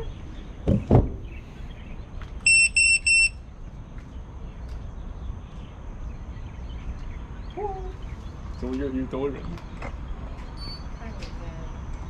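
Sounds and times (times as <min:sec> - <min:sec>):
high-pitched electronic beeps: 0:02.5 - 0:03.4.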